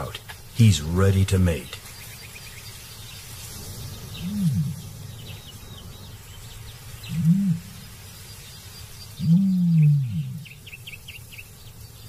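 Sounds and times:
faint high chirping: 0.0s - 12.0s
ostrich deep booming hoots: 4.2s - 5.0s, 7.1s - 7.8s, 9.2s - 10.6s.

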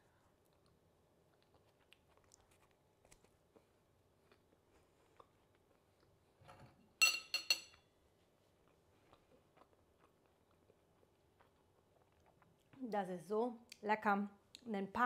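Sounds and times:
person chewing food: 0.0s - 6.3s, 8.2s - 12.8s
cutlery clinking on plate: 7.0s - 7.8s.

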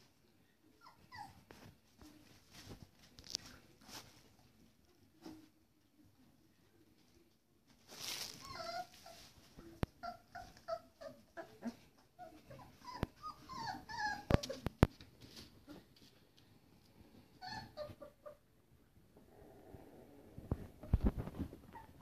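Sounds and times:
puppies whining and yelping: 0.8s - 1.5s, 8.3s - 9.3s, 9.9s - 14.8s, 17.4s - 18.4s.

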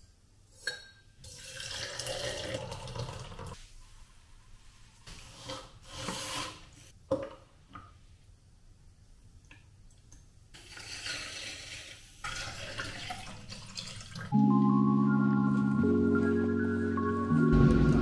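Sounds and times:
liquid pouring into glass jar: 1.3s - 3.3s.

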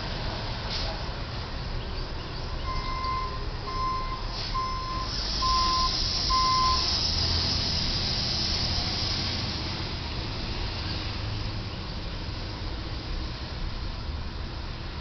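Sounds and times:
truck reversing alarm beeps: 2.6s - 7.2s
steady hiss: 4.2s - 9.9s.

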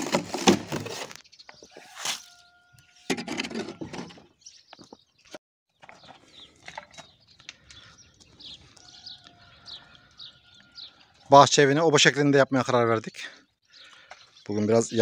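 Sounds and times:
small birds chirping: 1.1s - 3.1s, 4.1s - 15.0s
shovel scraping wet concrete: 1.8s - 2.3s.

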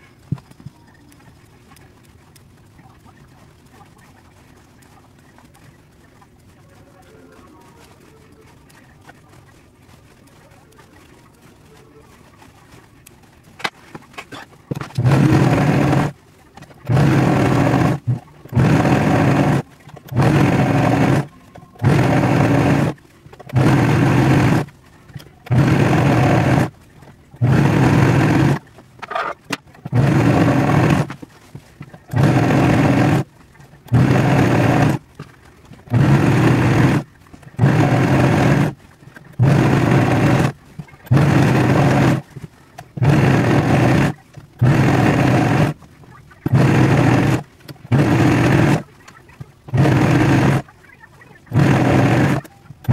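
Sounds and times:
overlock sewing machine running: 14.3s - 31.2s, 31.9s - 45.8s, 46.4s - 48.9s, 49.7s - 50.7s, 51.4s - 52.9s.

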